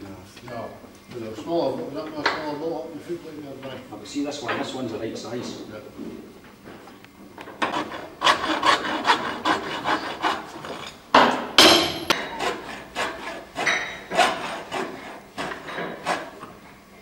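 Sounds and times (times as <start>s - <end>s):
hand tool scraping metal: 7.6s - 11.0s, 11.7s - 16.4s.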